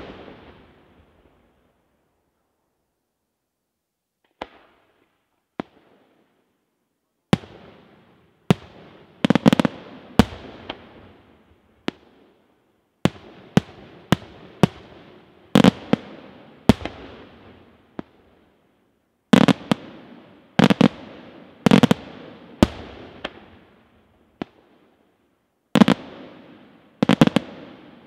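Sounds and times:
fireworks bursting: 0.0 - 1.0, 19.3 - 23.7, 25.8 - 28.0.

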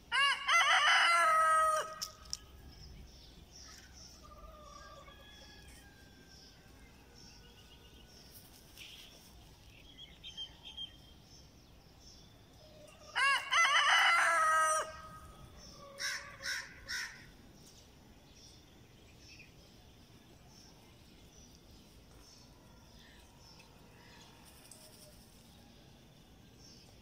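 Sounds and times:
rooster crowing: 0.1 - 2.1, 4.2 - 7.3, 12.9 - 17.2.

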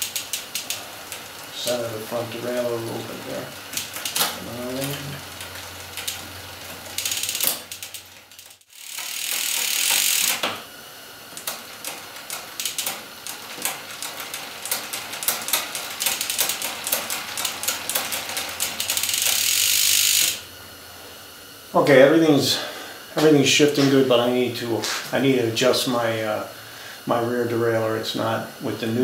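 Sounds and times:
freehub ratcheting clicks: 0.0 - 10.6, 11.3 - 20.5
gear-change clicks: 0.0 - 10.6, 11.2 - 20.4
bicycle chain running: 0.0 - 20.6.

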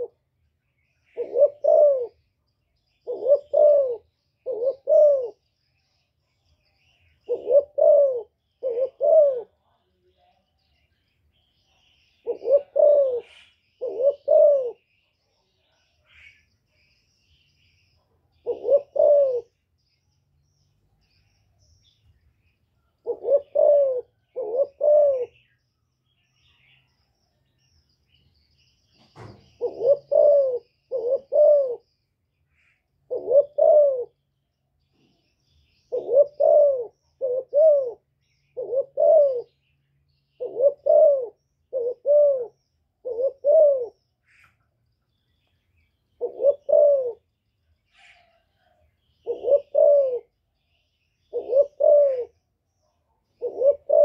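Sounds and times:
dove cooing: 0.0 - 0.2, 1.0 - 2.3, 2.9 - 5.6, 7.0 - 9.6, 12.1 - 15.0, 18.3 - 19.6, 23.0 - 25.6, 29.1 - 31.9, 32.7 - 34.2, 35.8 - 39.6, 40.3 - 44.5, 46.1 - 47.3, 47.9 - 50.4, 51.2 - 52.4, 53.2 - 54.0.

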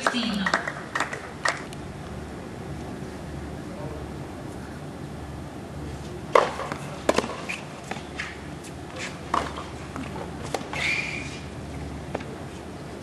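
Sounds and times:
tennis ball struck by rackets: 6.3 - 8.3, 9.0 - 11.3
shoe squeak on court: 10.7 - 11.4.

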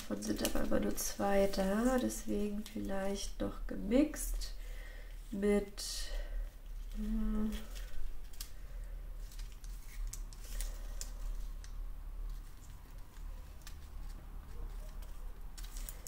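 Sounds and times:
tape crinkling on paper: 0.0 - 3.3, 6.6 - 16.0
low steady hum: 0.0 - 16.0.

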